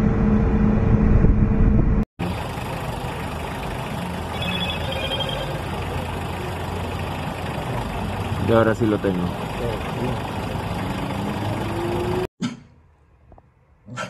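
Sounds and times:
faint high tone pulsing: 2.2s - 8.3s
vehicle engine idling: 2.2s - 12.3s.

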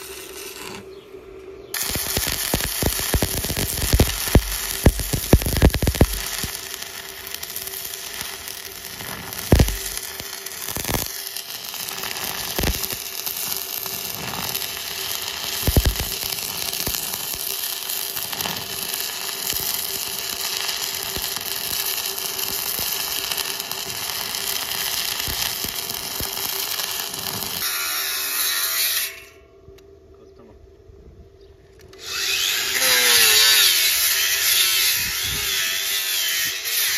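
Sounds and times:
welding arc crackling and buzzing: 0.0s - 1.0s, 1.7s - 29.3s, 32.0s - 36.9s
sharp welding pops: 0.0s - 29.3s.

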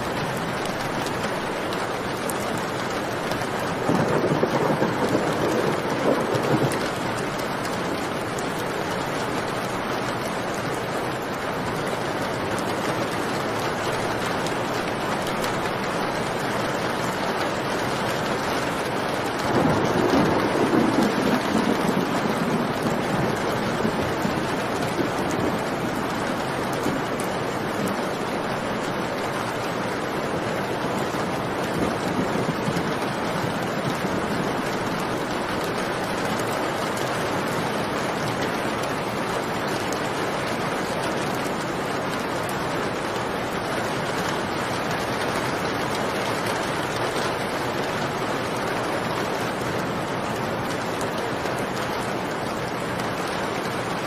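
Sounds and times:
heavy rain: 0.0s - 54.0s
thunder rumbling: 3.7s - 8.4s, 15.5s - 38.9s.

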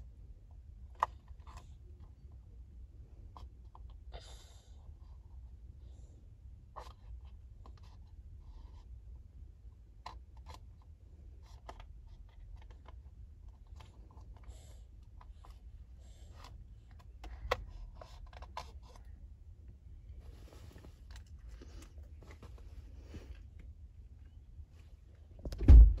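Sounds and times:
car cabin hum: 25.4s - 26.0s.

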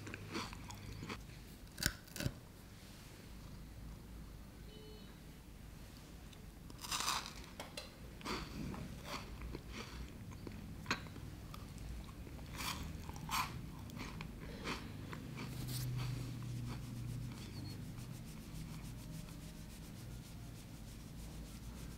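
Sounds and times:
candy crunching while chewing: 0.0s - 2.4s, 6.7s - 7.5s, 12.0s - 17.7s.

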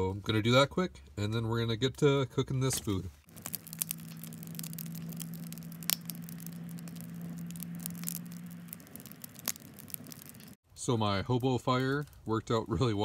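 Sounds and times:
wood fire crackling and popping: 2.6s - 13.0s
steady low hum: 3.1s - 10.6s.

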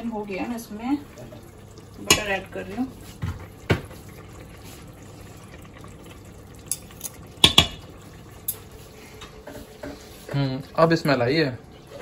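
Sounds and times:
gravy bubbling in a pot: 0.0s - 12.0s
utensil clinking on pot: 2.0s - 2.4s.

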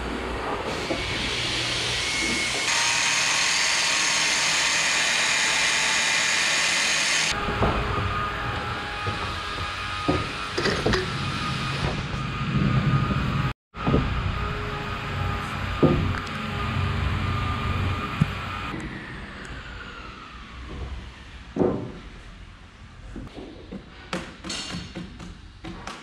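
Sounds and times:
electric planer cutting wood: 0.8s - 10.6s.

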